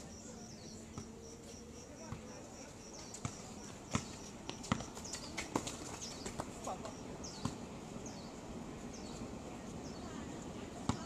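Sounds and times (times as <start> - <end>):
basketball bouncing on concrete: 3.1 - 6.5.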